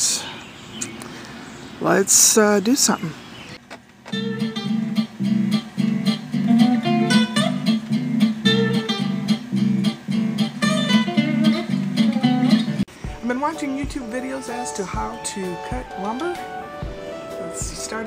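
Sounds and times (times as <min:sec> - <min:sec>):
acoustic guitar strumming: 0:04.1 - 0:18.0.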